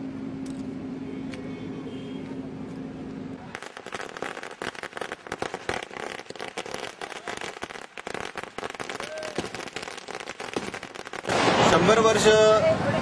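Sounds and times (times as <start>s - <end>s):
firecrackers crackling: 3.4s - 13.0s.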